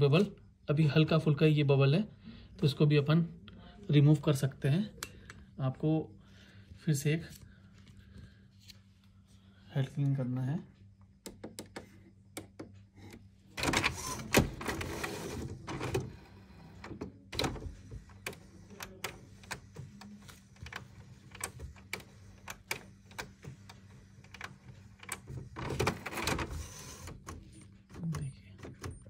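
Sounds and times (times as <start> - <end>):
printer mechanism whirring and clicking: 11.1 - 29.0.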